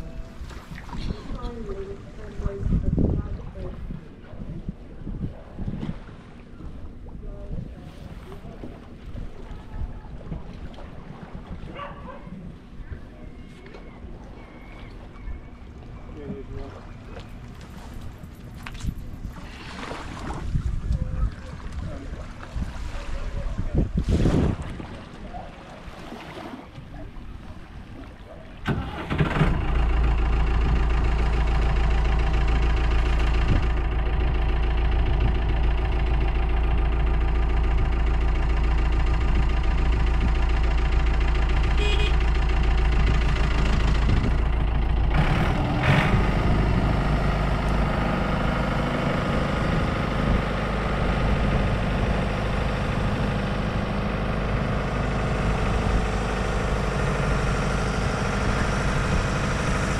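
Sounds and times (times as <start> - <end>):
tractor diesel engine: 28.6 - 59.9.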